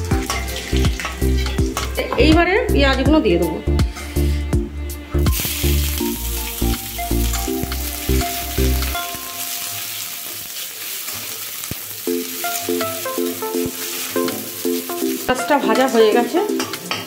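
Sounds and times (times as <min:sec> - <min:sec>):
onions sizzling in hot oil: 0:00.0 - 0:02.3, 0:05.2 - 0:17.0
background music: 0:00.0 - 0:10.3, 0:12.0 - 0:17.0
metal spatula scraping: 0:00.2 - 0:01.6.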